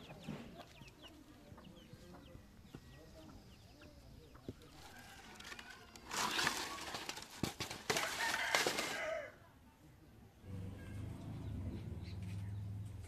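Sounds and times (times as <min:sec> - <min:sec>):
dry rustling and crackling snaps: 0:05.1 - 0:09.1.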